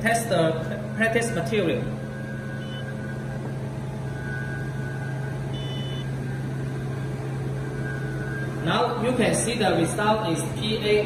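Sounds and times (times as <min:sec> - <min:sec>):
low machine hum: 0:00.0 - 0:11.0
faint high-pitched beeps: 0:02.0 - 0:06.2.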